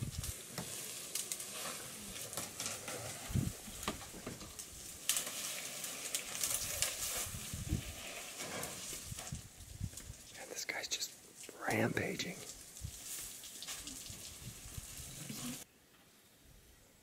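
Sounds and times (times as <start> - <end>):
leaves and twigs rustling: 0.0 - 15.7
twigs snapping: 3.7 - 7.3.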